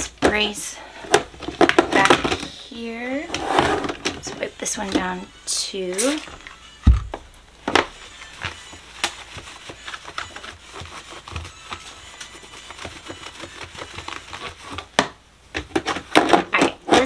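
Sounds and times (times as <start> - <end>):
plastic clacks and knocks: 1.1 - 2.5, 13.7 - 17.0
cloth rubbing: 8.0 - 14.8.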